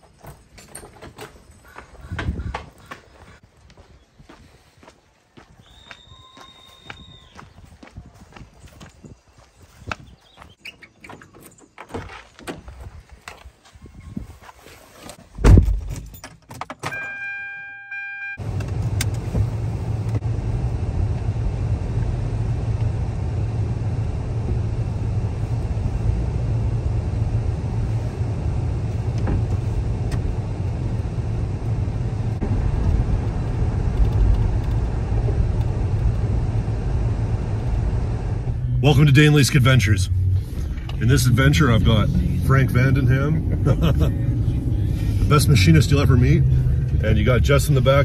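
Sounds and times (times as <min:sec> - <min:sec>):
car door shutting: 0:15.4 - 0:16.0, 0:29.1 - 0:30.3
electronic warning chime: 0:16.9 - 0:18.4
car driving rumble in cabin: 0:18.4 - 0:48.0.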